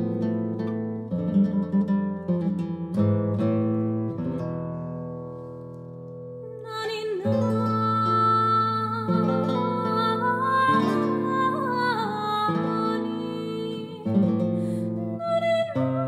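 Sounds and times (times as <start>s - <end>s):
acoustic guitar lullaby: 0.0s - 16.0s
soprano voice singing high note: 6.6s - 14.2s.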